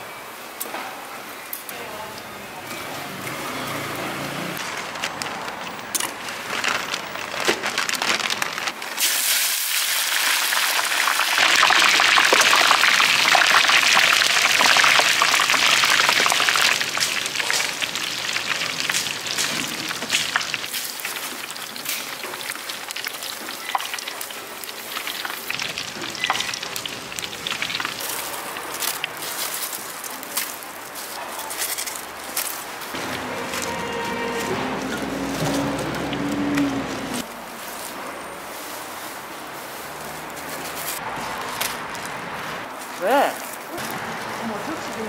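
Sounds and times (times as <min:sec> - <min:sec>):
oil sizzling in deep fryer: 0:09.0 - 0:29.5.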